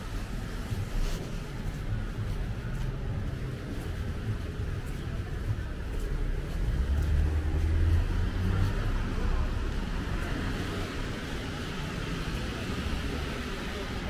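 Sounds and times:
tyre and road noise: 0.0 - 14.0
vehicle passing with engine rumble: 6.6 - 14.0.

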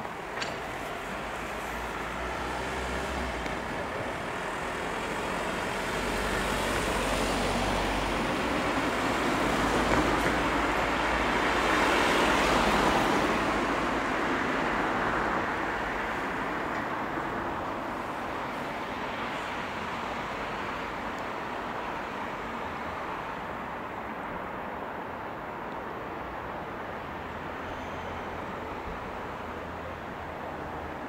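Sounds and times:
tyre and engine noise: 0.0 - 22.9
cars passing: 0.0 - 31.0.

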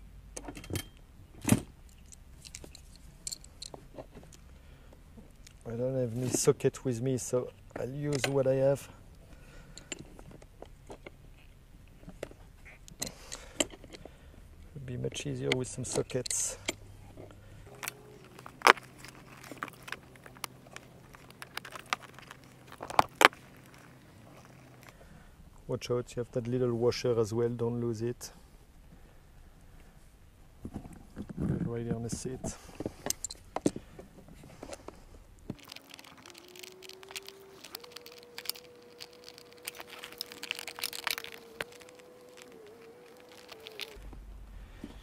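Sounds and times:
hand tools clicking and tapping: 35.5 - 44.0
fly buzzing: 35.6 - 44.0.

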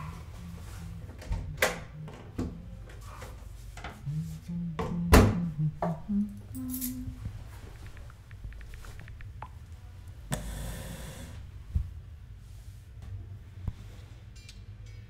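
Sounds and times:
short low held notes: 0.0 - 3.1, 4.0 - 7.4
steady low hum: 0.0 - 15.0.

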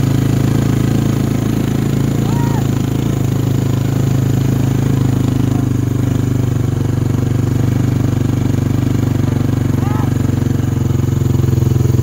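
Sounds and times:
quad engine droning: 0.0 - 12.0.

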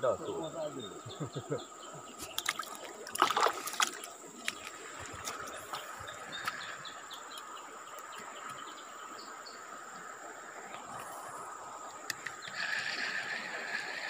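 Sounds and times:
insects droning: 0.0 - 14.0
bird chirps: 5.4 - 9.6.

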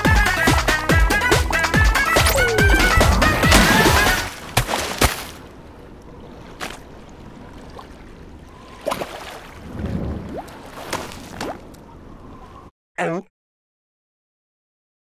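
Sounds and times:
cartoon background music: 0.0 - 4.3
watery splash effects: 1.3 - 11.8.

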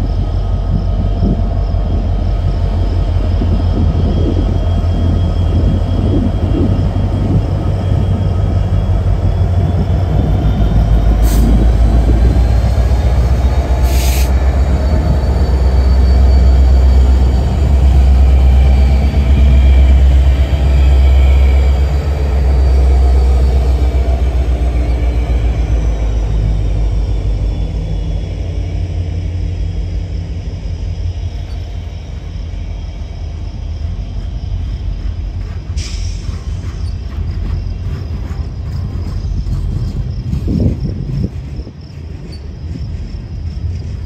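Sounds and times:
train wheels clattering on track: 0.0 - 44.0
faint wheel squeal: 31.2 - 40.4.

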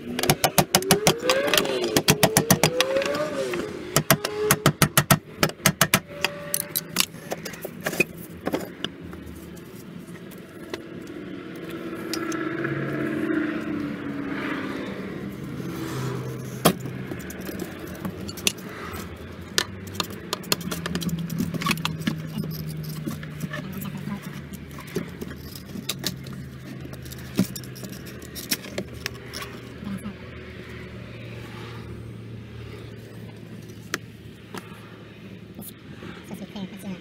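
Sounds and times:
metal rod and plastic housing clattering: 16.4 - 29.7.

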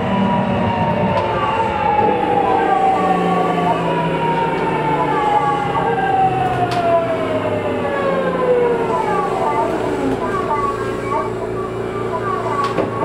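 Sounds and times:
train running noise: 0.0 - 13.0.

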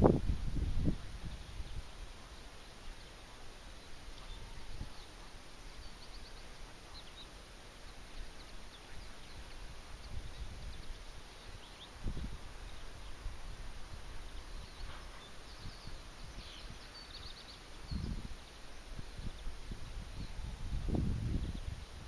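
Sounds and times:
wind buffeting microphone: 0.0 - 2.1, 9.3 - 22.0
faint bird chirps: 1.2 - 13.6, 14.2 - 22.0.

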